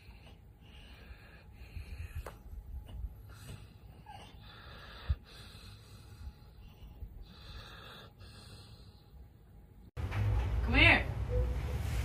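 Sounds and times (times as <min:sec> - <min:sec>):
dog breathing heavily: 0:00.0 - 0:09.4.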